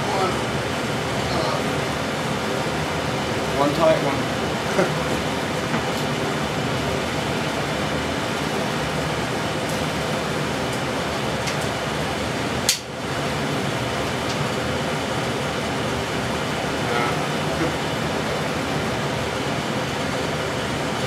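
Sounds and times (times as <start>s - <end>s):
mechanical drone: 14.6s - 21.0s.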